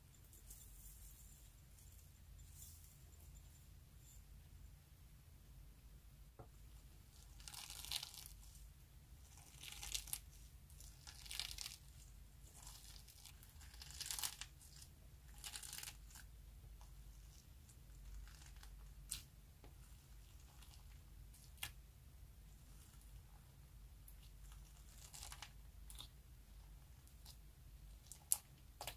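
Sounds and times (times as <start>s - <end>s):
crinkly slime squishes: 6.7s - 8.6s, 9.2s - 21.8s, 24.1s - 28.9s.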